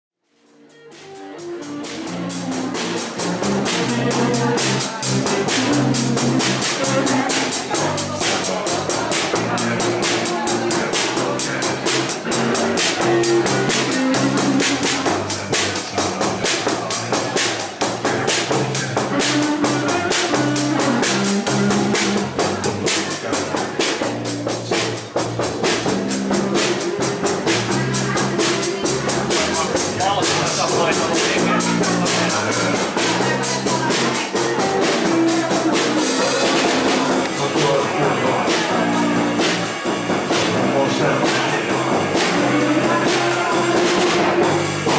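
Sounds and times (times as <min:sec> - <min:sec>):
live band playing: 0:00.3 - 0:44.9
drum kit beat: 0:00.4 - 0:44.9.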